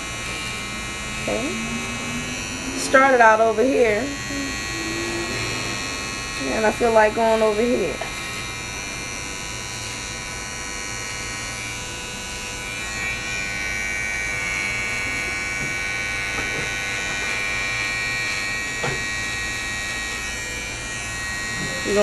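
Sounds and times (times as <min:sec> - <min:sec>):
electric hair clipper buzzing: 0:00.0 - 0:22.0.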